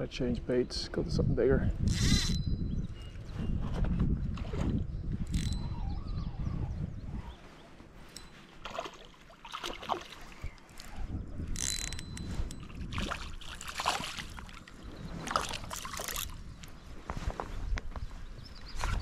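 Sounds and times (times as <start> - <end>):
fish splashing at water surface: 8.6 - 10.4.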